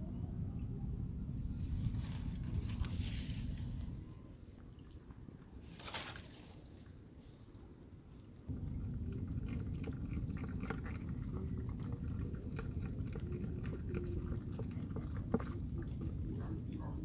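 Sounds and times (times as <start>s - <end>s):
steady low rumble: 0.0s - 4.6s, 8.4s - 17.0s.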